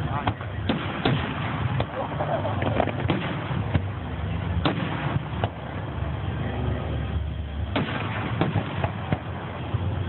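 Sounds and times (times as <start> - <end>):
firework shells bursting: 7.7 - 9.4.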